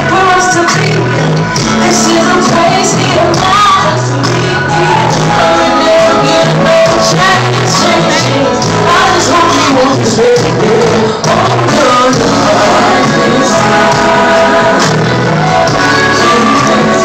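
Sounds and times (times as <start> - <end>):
live band music: 0.0 - 17.0
woman singing: 0.0 - 17.0.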